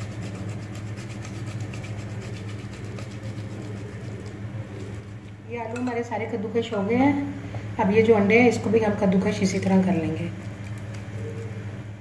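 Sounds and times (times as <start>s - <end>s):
potato rasping on a grater: 0.0s - 5.3s
steady low hum: 0.0s - 12.0s.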